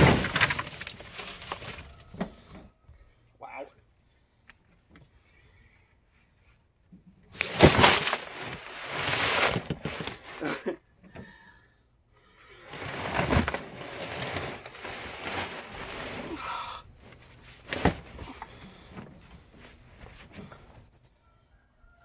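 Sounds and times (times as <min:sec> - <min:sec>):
shovel scraping sludge: 0:07.4 - 0:10.4.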